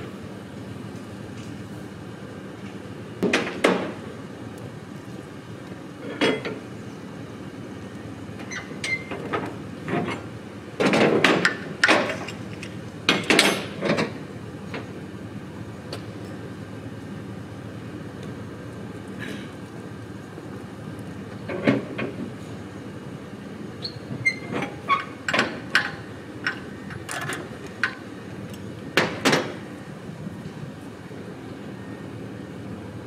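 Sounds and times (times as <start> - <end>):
metal clanks and knocks: 10.8 - 12.4, 13.1 - 14.2, 24.3 - 28.0.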